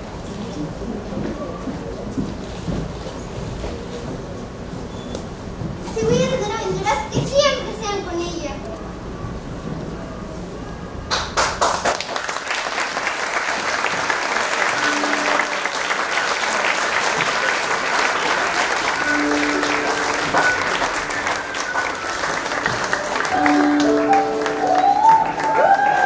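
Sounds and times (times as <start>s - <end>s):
audience applauding: 11.1s - 26.0s
music with held notes: 14.7s - 15.9s, 18.9s - 26.0s.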